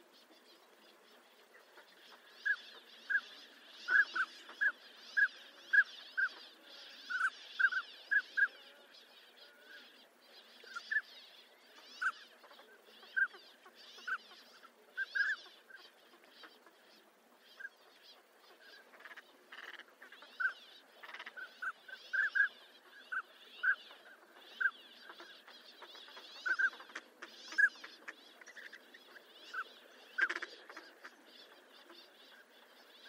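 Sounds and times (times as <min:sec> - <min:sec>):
hoarse chattering calls: 0:29.5 - 0:31.3.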